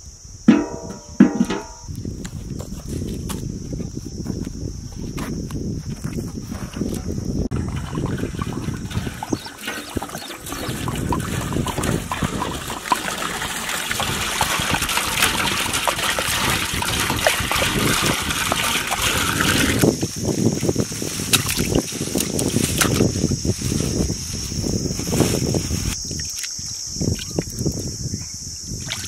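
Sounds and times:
water pouring into metal pot: 7.5 - 20.0
high insect buzz: 19.8 - 28.9.

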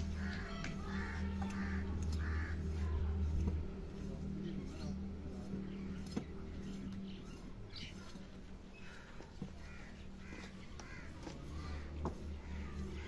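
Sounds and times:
crows cawing: 0.0 - 2.8, 8.8 - 13.0
steady low hum: 0.0 - 13.0.

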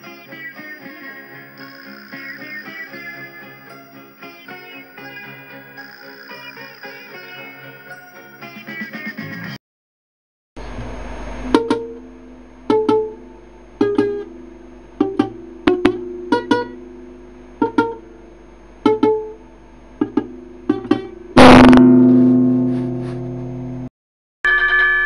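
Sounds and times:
plucked guitar notes: 0.0 - 8.2, 11.5 - 18.2, 18.8 - 19.4, 20.0 - 23.8
loud noisy hit with chord: 21.4 - 23.9.

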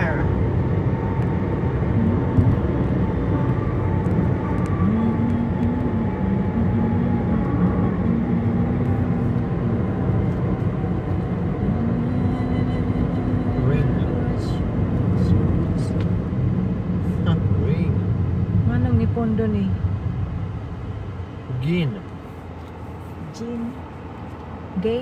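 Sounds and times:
car cabin road noise: 0.0 - 25.0.

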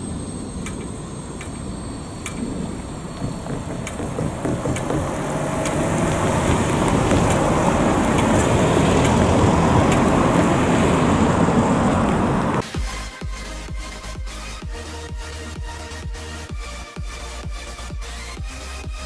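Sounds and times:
cars passing over crossing: 0.0 - 12.6.

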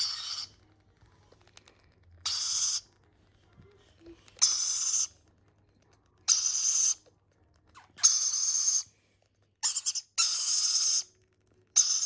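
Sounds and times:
baby lorikeets rasping begging calls: 0.0 - 0.6, 2.2 - 2.8, 4.4 - 5.1, 6.3 - 7.0, 8.0 - 8.9, 9.6 - 11.1, 11.8 - 12.0.

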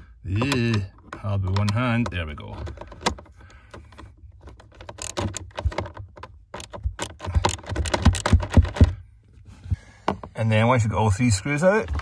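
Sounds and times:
socket ratchet clicking: 0.4 - 9.0.

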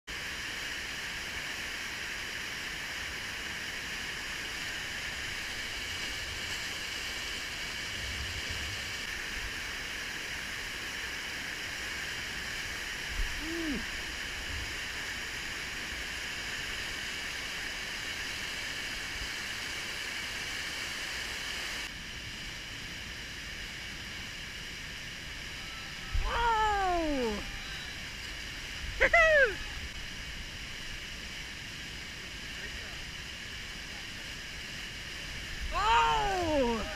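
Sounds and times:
person calling: 13.4 - 13.9, 25.6 - 28.0, 29.0 - 29.8, 35.7 - 36.9
person whooping: 13.4 - 13.9, 25.6 - 28.0, 28.9 - 29.9, 35.7 - 36.9.

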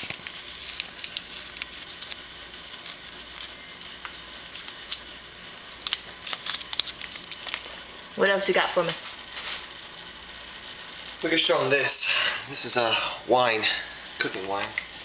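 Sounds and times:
stew popping and crackling: 0.0 - 8.2.

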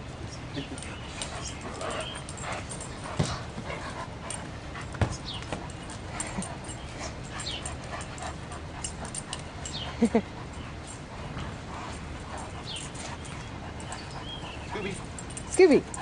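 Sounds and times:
dogs whimpering: 11.8 - 16.0.

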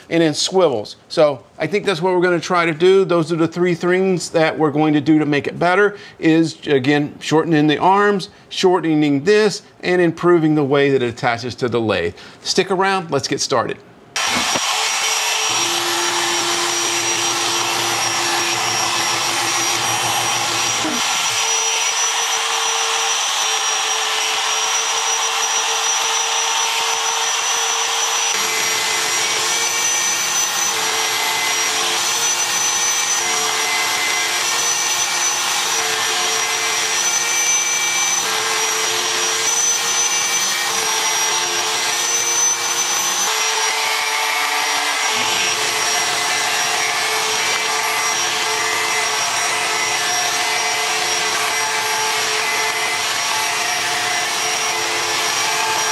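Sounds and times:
router spindle cutting wood: 14.2 - 55.9
shop vacuum running: 14.2 - 55.9.

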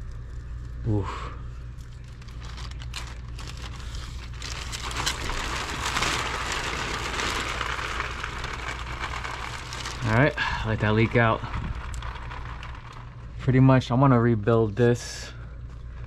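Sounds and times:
plastic sheeting crinkling: 1.6 - 14.8.

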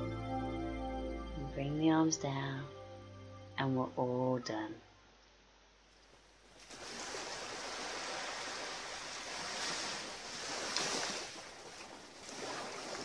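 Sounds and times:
small waves washing ashore: 6.5 - 13.0.

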